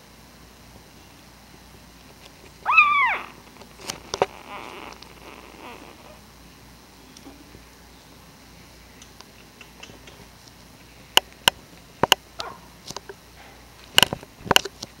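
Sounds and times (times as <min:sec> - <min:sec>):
puppies squeaking: 0:02.7 - 0:06.2.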